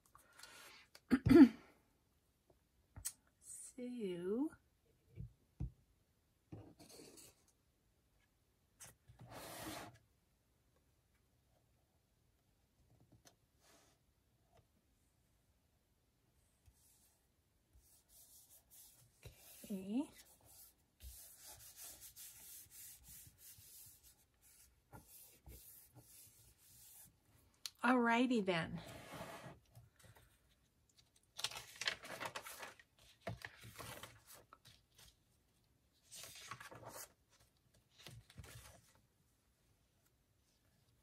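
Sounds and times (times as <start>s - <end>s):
faint rubbing on paper: 16.7s - 27.2s
paper rubbing and handling: 31.4s - 35.2s, 36.0s - 38.9s.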